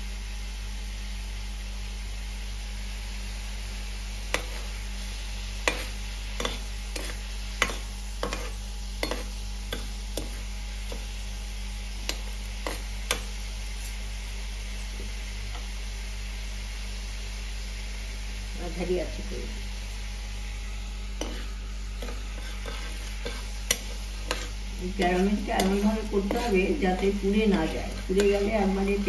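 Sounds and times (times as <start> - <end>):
spoon scraping sugar syrup in pan: 4.3 - 4.8, 5.6 - 11.1, 12.0 - 14.0, 21.2 - 29.0.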